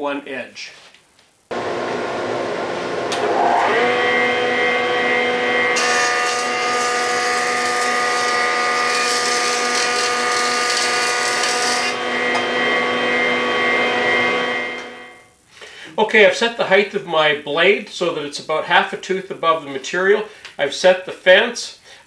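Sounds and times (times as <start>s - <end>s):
jointer motor whine: 1.5s - 15.3s
jointer planing board with hissing cut: 3.1s - 15.0s.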